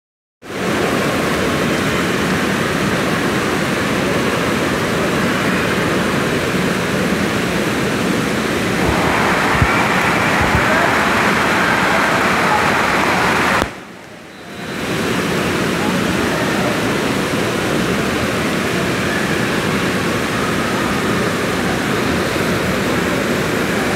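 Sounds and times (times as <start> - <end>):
crowd din echoing: 8.4 - 16.7.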